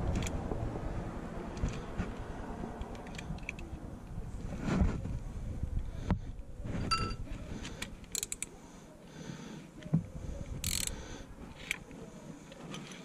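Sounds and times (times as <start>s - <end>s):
ratchet clicking: 8.0s - 8.5s, 10.6s - 11.0s.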